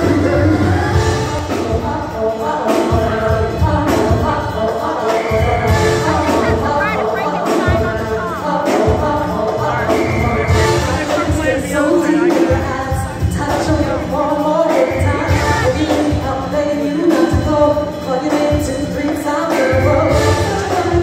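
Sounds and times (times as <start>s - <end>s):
live band music: 0.0s - 21.0s
person singing: 0.0s - 21.0s.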